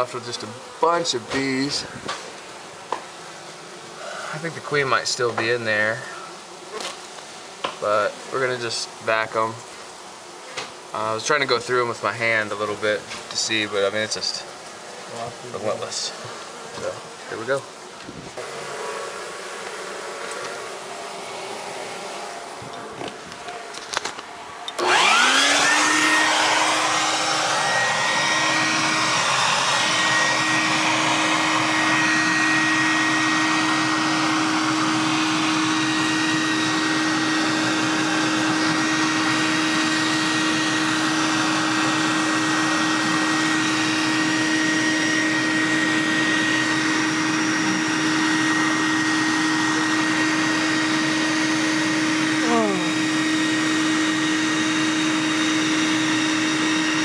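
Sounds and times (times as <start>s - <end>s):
honey bees buzzing: 0.0s - 57.0s
vacuum motor whining: 15.6s - 57.0s.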